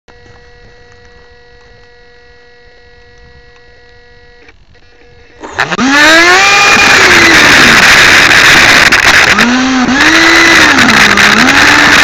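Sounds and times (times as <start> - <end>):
faint electrical hum: 0.1 - 5.8
small motor whining: 0.1 - 12.0.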